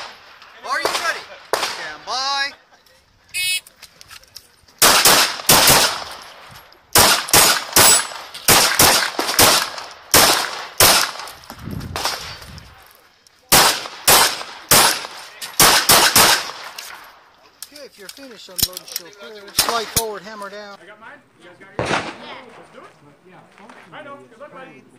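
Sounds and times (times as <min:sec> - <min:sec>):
pistol shots: 0:00.0 - 0:02.0, 0:04.8 - 0:11.4, 0:13.5 - 0:17.1, 0:21.8 - 0:22.5.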